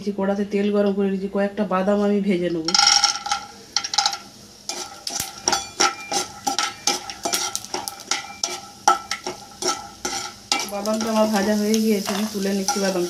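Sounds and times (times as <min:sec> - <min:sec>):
peanuts sizzling in hot oil: 0:02.6 - 0:13.0
metal spoon scraping a pan: 0:02.7 - 0:13.0.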